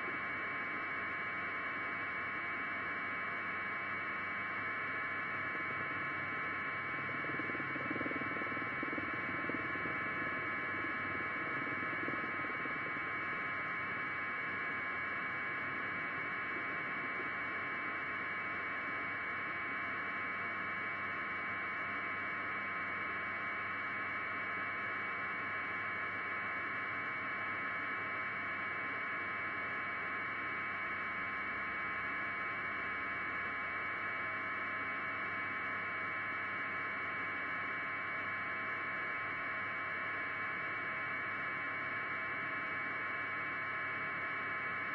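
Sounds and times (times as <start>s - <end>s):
electronic static hiss and hum: 0.0s - 21.8s
faint steady tones: 0.0s - 21.9s.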